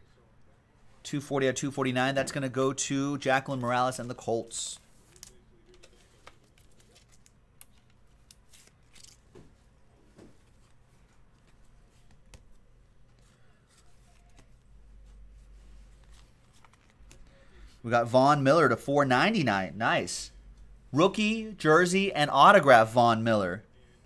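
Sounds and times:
trading cards clicking and rustling: 5.0 - 14.7, 15.8 - 17.4.

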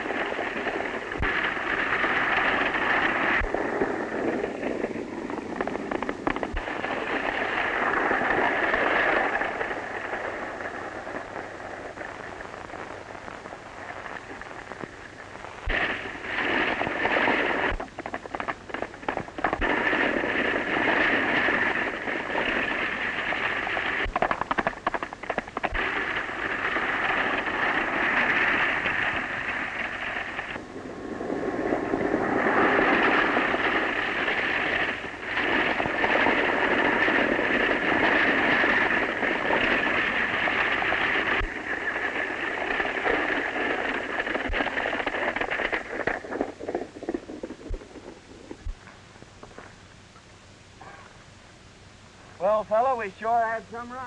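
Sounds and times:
film soundtrack hiss and crackle: 0.0 - 54.0
horses galloping: 15.7 - 49.8.

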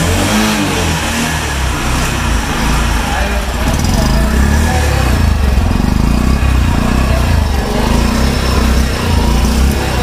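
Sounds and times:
motorcycle engine idling: 0.0 - 10.0.

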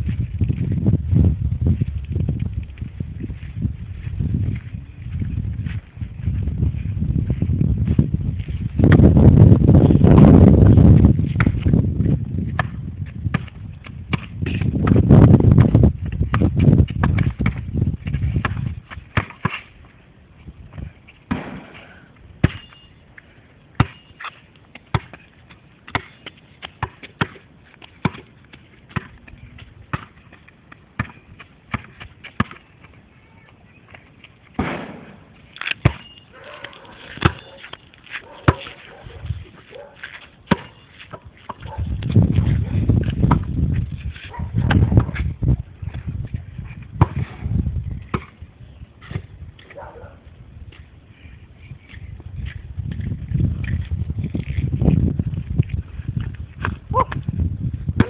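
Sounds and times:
basketball bouncing on hard court: 11.3 - 11.8, 12.5 - 19.6, 22.4 - 22.8, 23.8 - 27.4, 28.0 - 28.3, 28.9 - 32.7, 35.8 - 36.2, 37.1 - 37.6, 40.5 - 43.8, 47.0 - 47.4, 48.0 - 48.4.

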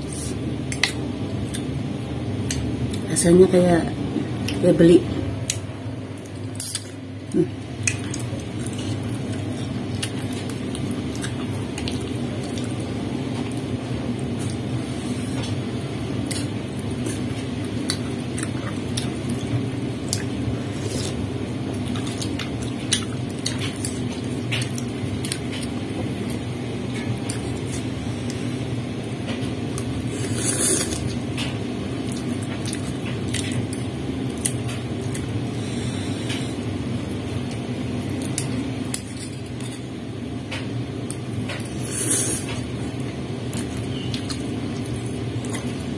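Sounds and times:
steady low hum: 0.0 - 45.9
wet chewing: 5.4 - 14.7, 16.2 - 26.4.

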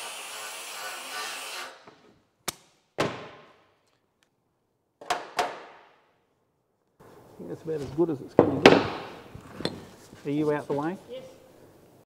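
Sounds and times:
handheld grinder grinding metal: 0.0 - 1.8.

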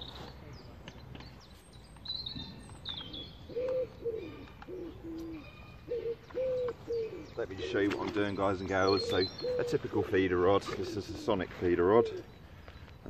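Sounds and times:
small birds chirping: 0.0 - 13.0
pigeon cooing: 3.5 - 12.2.

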